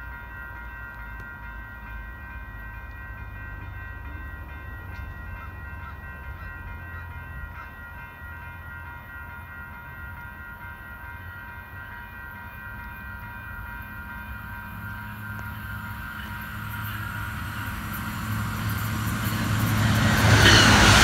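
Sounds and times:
train engine rumble: 0.0s - 21.0s
steady high tones: 7.9s - 21.0s.

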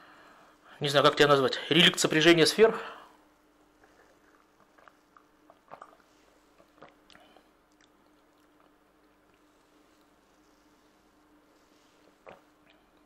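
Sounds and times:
low steady hum: 0.0s - 13.0s
mouth smacks and clicks: 4.3s - 9.5s, 12.2s - 13.0s.

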